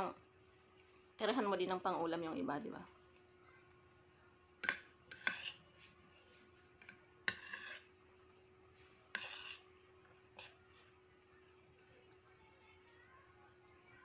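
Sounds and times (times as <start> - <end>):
metal spoon scraping ceramic plate: 4.6 - 5.7, 7.3 - 7.9, 9.1 - 9.7, 10.4 - 10.6.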